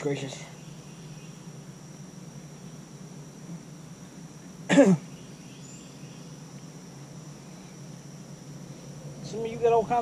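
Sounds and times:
crickets chirping: 0:00.0 - 0:10.0
man coughing: 0:04.7 - 0:05.0.

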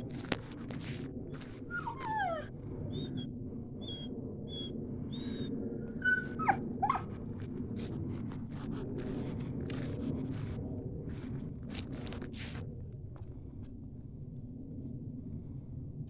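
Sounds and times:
dog whining and whimpering: 0:01.6 - 0:07.2.

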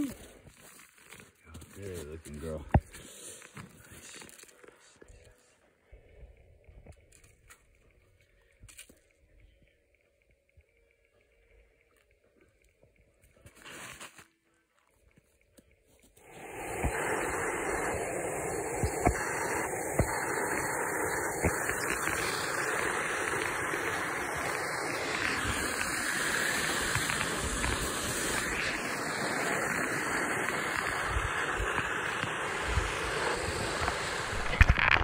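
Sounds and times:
wind on phone microphone: 0:16.2 - 0:35.0.

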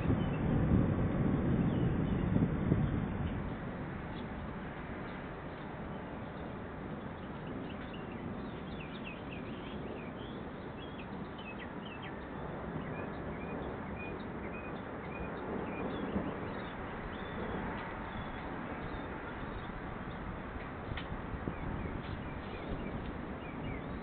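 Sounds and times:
small birds chirping: 0:05.0 - 0:24.0.

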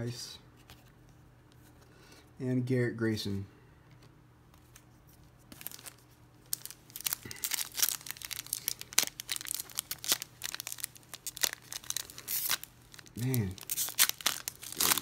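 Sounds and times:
foil wrapper crinkling and tearing: 0:05.5 - 0:15.0.

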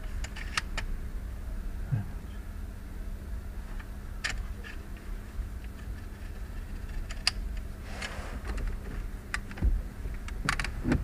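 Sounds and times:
steady low hum: 0:00.0 - 0:11.0
short rustle: 0:07.8 - 0:08.5.

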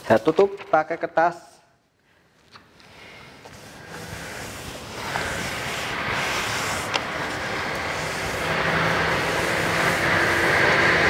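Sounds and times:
iron scraping over paper: 0:03.3 - 0:11.0.

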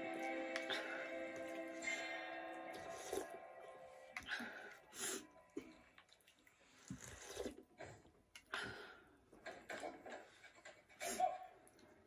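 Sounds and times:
chewing: 0:04.1 - 0:08.9.

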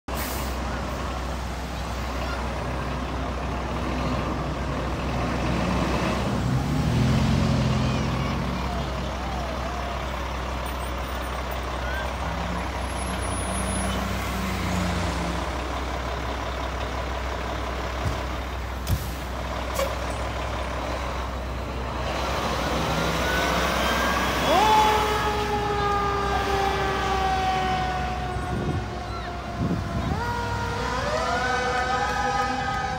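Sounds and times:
fire engine diesel engine rumbling: 0:00.1 - 0:32.9
siren wailing: 0:23.1 - 0:32.9.

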